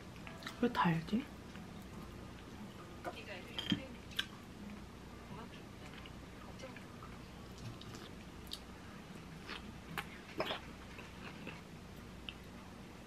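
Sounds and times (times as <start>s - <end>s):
quiet chewing: 5.8s - 12.6s.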